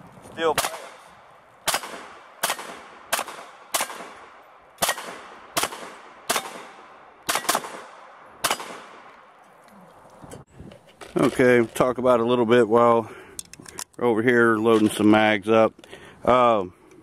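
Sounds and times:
pistol shots with echo: 0.5s - 1.0s, 1.6s - 9.2s.

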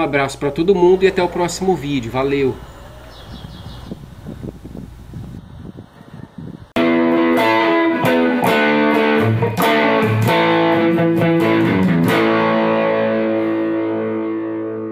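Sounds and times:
distorted guitar riff: 6.8s - 14.9s.

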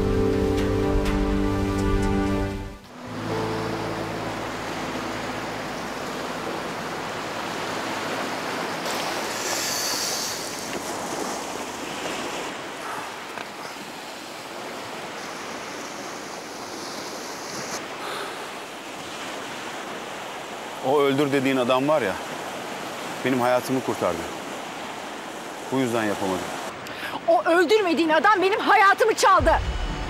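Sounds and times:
held music chord: 0.0s - 8.5s
waves washing against shore: 2.3s - 27.3s.

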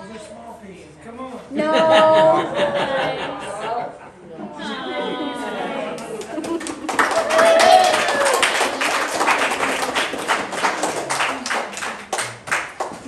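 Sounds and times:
people clapping: 5.8s - 13.0s.

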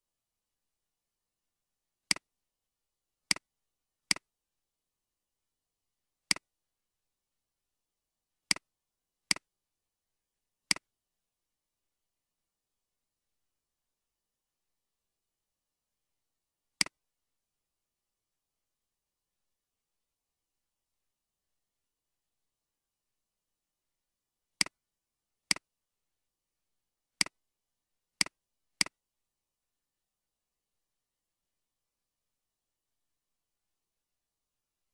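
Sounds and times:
computer mouse clicks: 2.1s - 2.3s, 6.3s - 6.5s, 28.2s - 29.0s.

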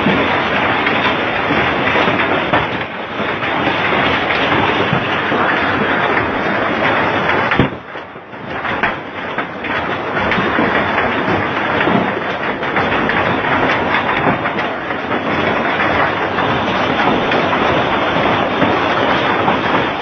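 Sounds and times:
heavy rain and hail clatter: 0.0s - 20.0s
sharp knock: 7.5s - 7.8s.

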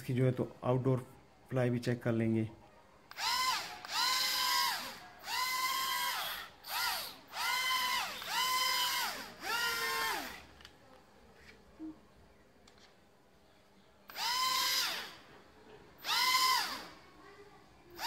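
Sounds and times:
small electric motors whining: 3.1s - 10.5s, 14.1s - 15.2s, 16.0s - 17.0s.

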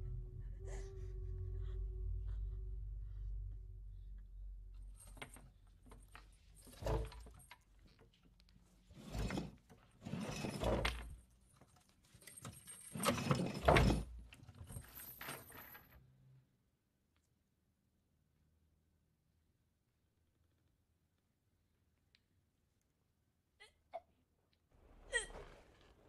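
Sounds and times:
metal chain rattling: 12.1s - 16.0s.

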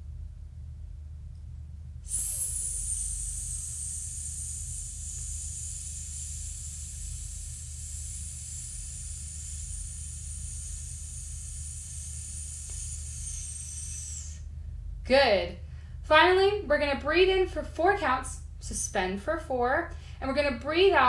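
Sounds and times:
woman hissing on out-breath: 2.0s - 14.5s.

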